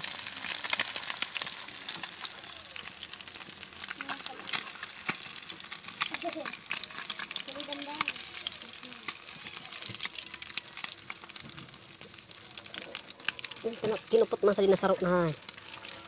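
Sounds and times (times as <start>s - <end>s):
fish sizzling in oil: 0.0s - 16.0s.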